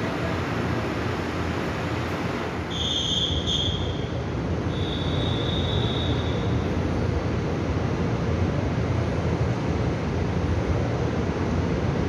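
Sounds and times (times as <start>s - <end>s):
train rumbling: 0.0s - 12.0s
high steady squeals: 2.7s - 6.7s.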